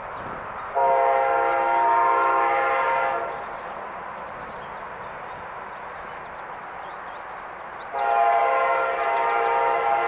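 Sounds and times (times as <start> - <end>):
train rumble: 0.0 - 10.0
locomotive air horn chord: 0.8 - 3.3, 8.0 - 10.0.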